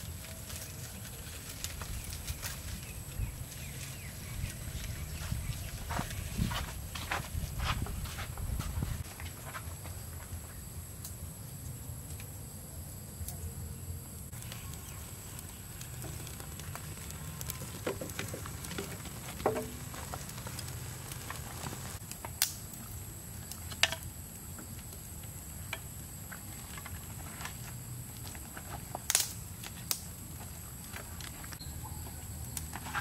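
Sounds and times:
firewood clicks and knocks: 14.3 - 31.6.

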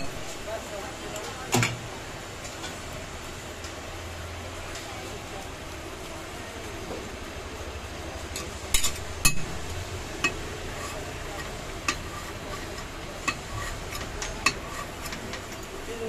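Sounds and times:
spatula scraping a griddle: 8.4 - 15.9
spatula clicking on pan: 10.2 - 10.5, 11.4 - 12.1.

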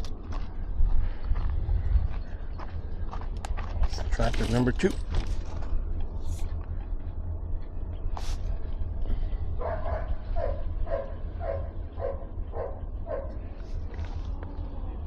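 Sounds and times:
low rumble: 0.0 - 15.0
dog barking: 9.6 - 13.4.

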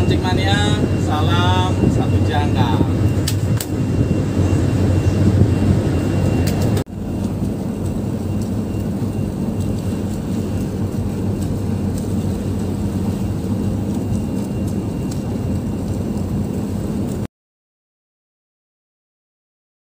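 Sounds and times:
boat engine droning: 0.0 - 17.3
wind: 0.0 - 17.3.

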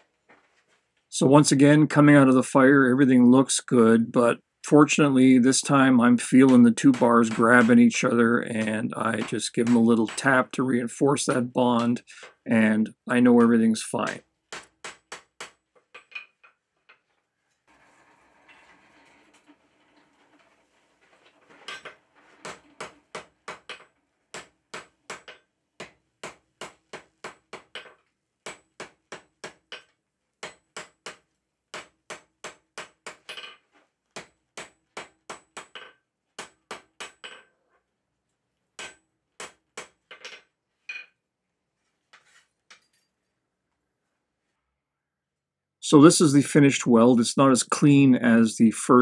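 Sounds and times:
hammer striking iron on anvil: 34.2 - 35.8, 38.8 - 39.9.

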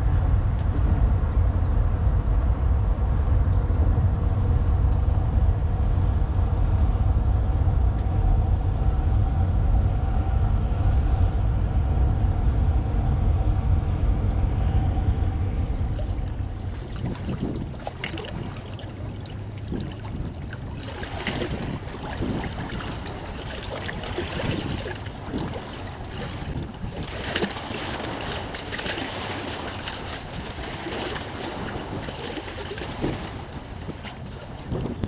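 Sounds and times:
wind rumbling on microphone: 0.0 - 35.0
water sloshing and splashing: 15.1 - 35.0.

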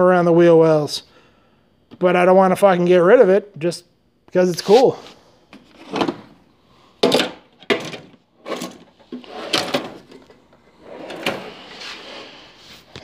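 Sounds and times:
tools knocking and clattering: 7.0 - 10.4.

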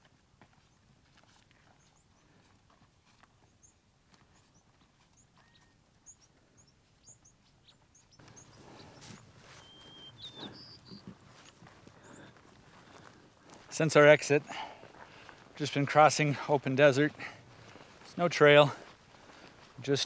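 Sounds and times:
footsteps crunching through sand: 0.0 - 6.3, 7.6 - 20.0
small high chirps: 4.4 - 12.2.

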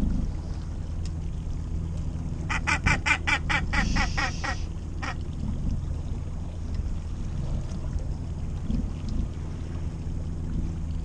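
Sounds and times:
gannet calling: 2.4 - 5.3.

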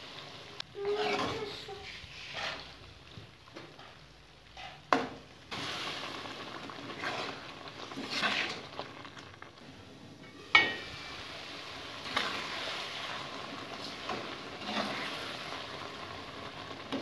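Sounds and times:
curry sizzling in pan: 0.0 - 17.0
metal spoon scraping pan: 0.8 - 2.7
metal lid clanking on pan: 10.5 - 10.9.

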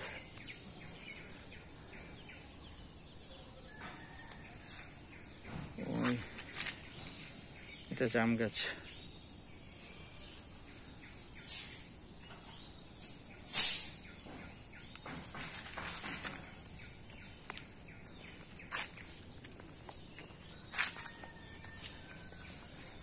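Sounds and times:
footsteps crunching on dry leaves: 15.2 - 23.0.

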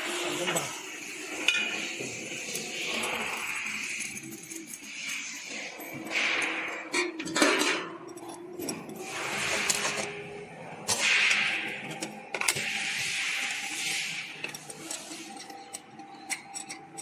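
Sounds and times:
metal parts clinking and rattling: 0.4 - 10.2, 10.8 - 17.0
rubbing and handling noise: 10.9 - 17.0.

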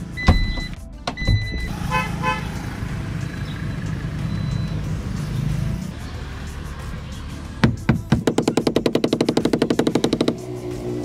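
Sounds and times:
short electronic beeps: 0.2 - 1.8, 3.3 - 4.9
tailgate latch knock: 7.6 - 10.4.

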